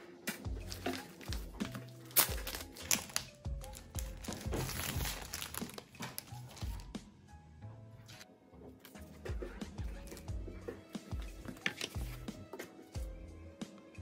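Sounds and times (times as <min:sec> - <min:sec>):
background music with low beat: 0:00.0 - 0:14.0
plastic wrap crinkling: 0:00.3 - 0:06.9.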